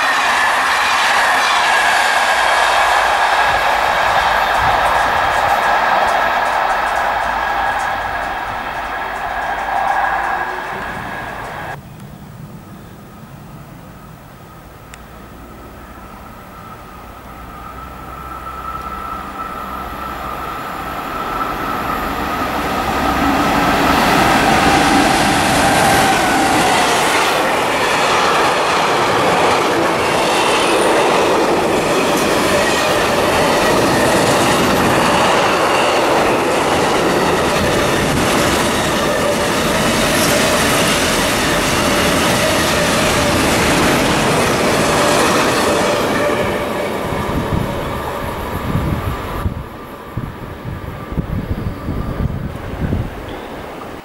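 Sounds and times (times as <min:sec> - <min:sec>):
freight train passing: 0:00.0 - 0:54.0.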